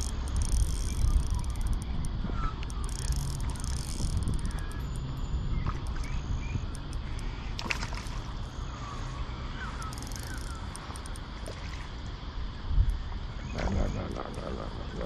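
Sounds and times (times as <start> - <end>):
sharp click: 0.0 - 6.1
wind rumble: 0.0 - 14.0
faint bird chirps: 0.4 - 11.6, 12.4 - 15.0.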